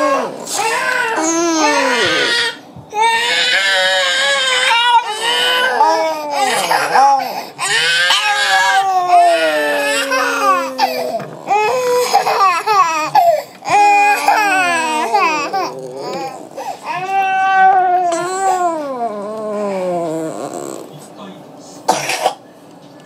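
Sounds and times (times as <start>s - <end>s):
baby crying: 0.0s - 20.9s
dog howling: 3.3s - 20.8s.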